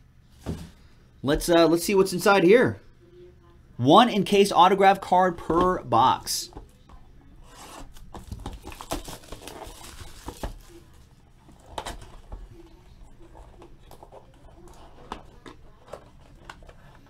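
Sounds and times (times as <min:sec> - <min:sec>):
cardboard rustling and tearing: 0:07.4 - 0:17.0.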